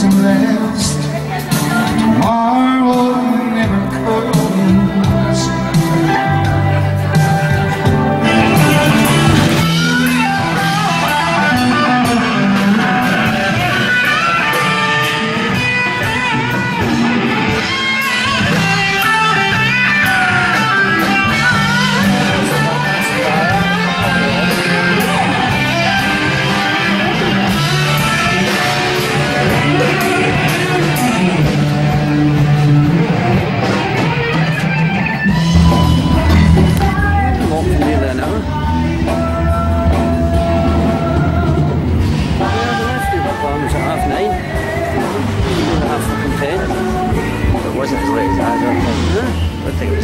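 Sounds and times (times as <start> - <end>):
bass guitar: 0.0 - 50.0
electric guitar melody: 0.0 - 50.0.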